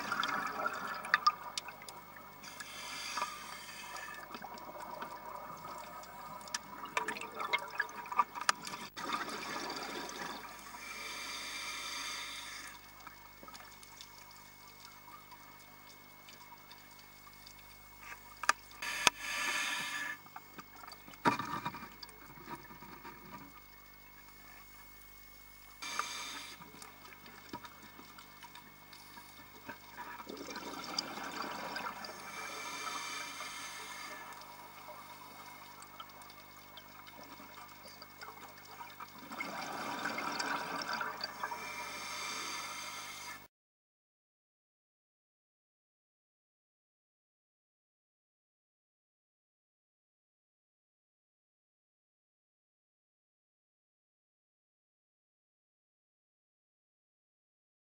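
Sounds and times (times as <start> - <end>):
exhaled bubbles gurgling: 0.0 - 17.5, 25.8 - 43.4
faint underwater crackling: 0.0 - 43.5
regulator inhale hiss: 2.4 - 4.4, 10.6 - 12.9, 18.8 - 20.3, 25.8 - 27.2, 31.6 - 35.6, 41.4 - 43.5.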